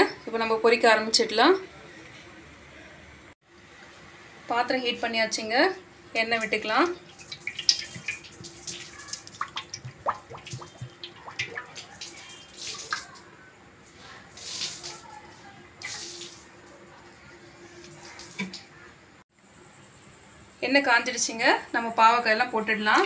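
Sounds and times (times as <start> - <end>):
oil pouring and splashing: 6.5 - 13.2.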